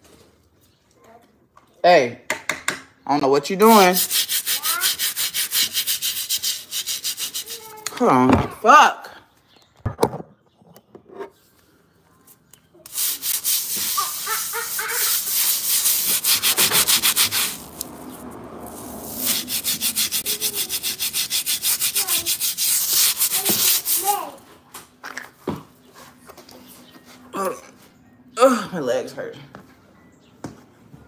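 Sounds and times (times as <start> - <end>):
rag scrubbing concrete floor: 3.6 - 8.0, 12.8 - 24.4.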